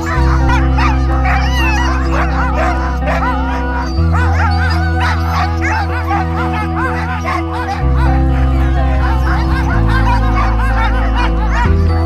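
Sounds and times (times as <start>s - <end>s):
background music with low chords: 0.0s - 12.0s
huskies yipping and whining: 0.0s - 12.0s.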